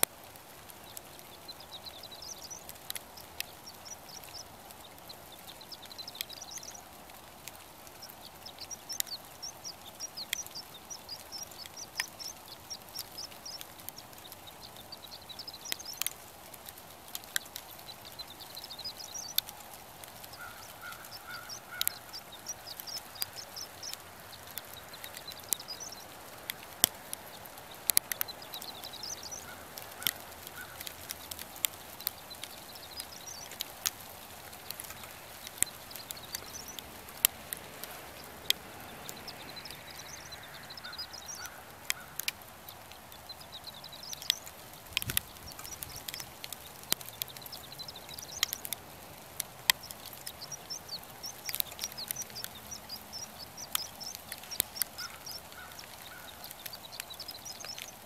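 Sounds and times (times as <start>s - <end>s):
sharp clicks: 0.0s - 58.0s
small songbirds twittering: 0.0s - 58.0s.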